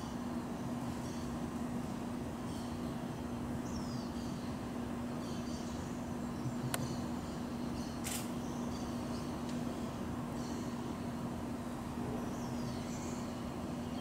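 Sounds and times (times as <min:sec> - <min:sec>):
steady low hum: 0:00.0 - 0:14.0
sharp click: 0:08.0 - 0:08.3.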